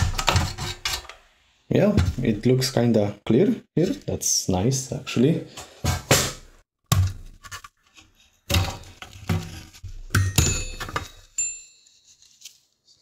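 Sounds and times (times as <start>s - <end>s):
knocks and clinks of handled metal: 10.1s - 12.0s.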